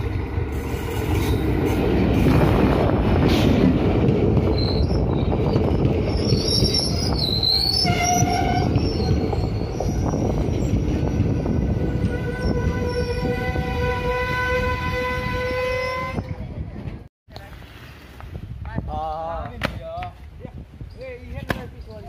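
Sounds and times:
train wheels rumbling on rail: 0.0s - 17.1s
high-pitched wheel squeal: 4.5s - 16.4s.

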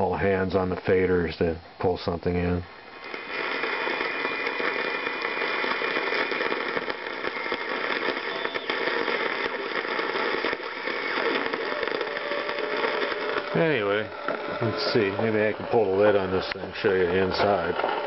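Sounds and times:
radio static hiss and crackle: 0.0s - 18.0s
faint whistle tones: 7.0s - 12.7s.

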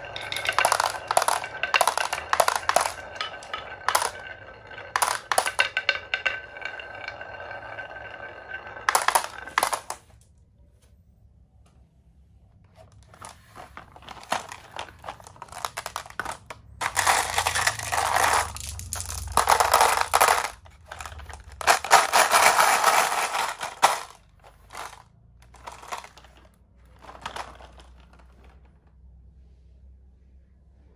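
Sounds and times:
glass marbles rattling: 0.0s - 10.1s, 14.0s - 28.4s.

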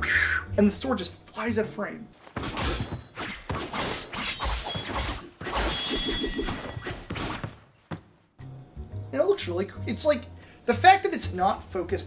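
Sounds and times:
sword clashes: 2.5s - 7.1s.

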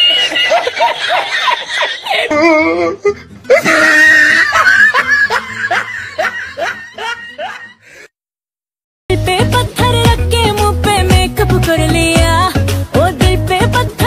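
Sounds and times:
background music with bass line: 9.1s - 14.0s.

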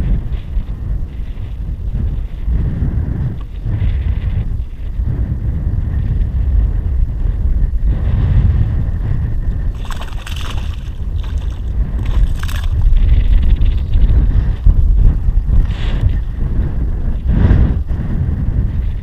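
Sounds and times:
wind buffeting microphone: 0.0s - 19.0s
fish splashing at surface: 9.8s - 13.0s.

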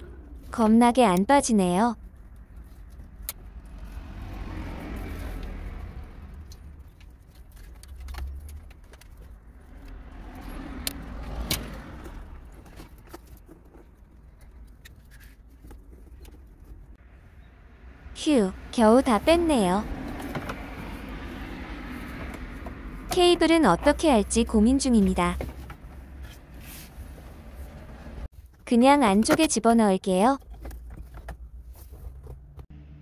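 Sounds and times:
wire bundle rustling and rattling: 5.0s - 9.8s.

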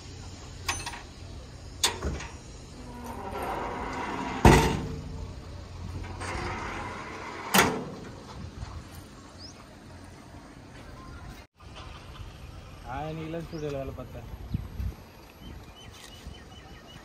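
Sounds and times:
metal engine doors slamming: 0.6s - 8.5s.

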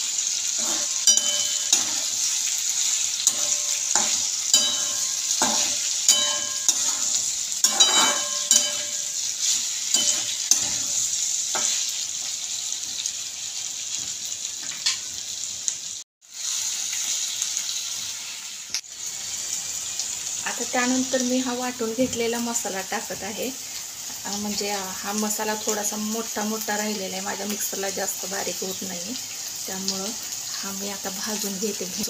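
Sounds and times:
vegetables sizzling in oil: 0.0s - 32.0s
spatula scraping a pan: 0.2s - 12.0s.

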